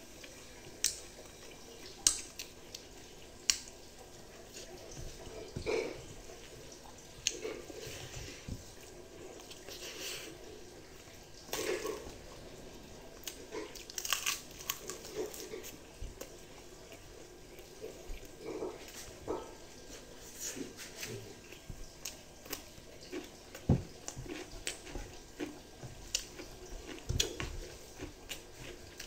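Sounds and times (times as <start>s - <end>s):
chewing with crunchy clicks: 13.2s - 19.5s, 21.1s - 29.0s.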